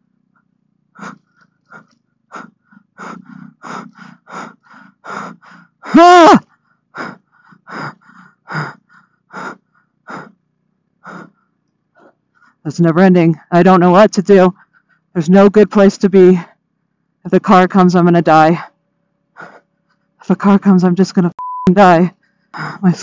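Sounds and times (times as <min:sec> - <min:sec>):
person gasping for breath: 0:01.0 - 0:10.4, 0:11.0 - 0:12.6, 0:19.4 - 0:19.6, 0:22.6 - 0:23.0
person crying out: 0:05.9 - 0:07.2.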